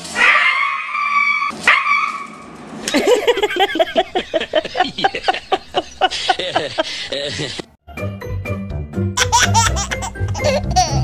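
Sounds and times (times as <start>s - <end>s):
dogs barking and yelping: 0.2s - 2.5s
woman laughing: 2.9s - 7.7s.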